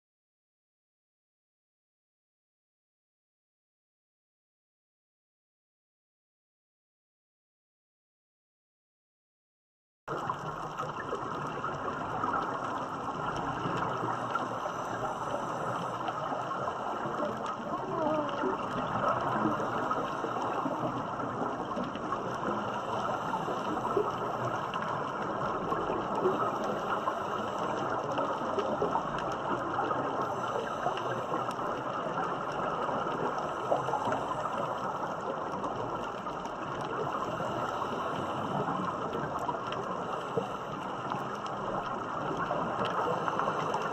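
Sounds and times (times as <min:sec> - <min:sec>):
scuba air bubbling: 0:10.1 - 0:43.9
underwater crackling hiss: 0:10.1 - 0:43.9.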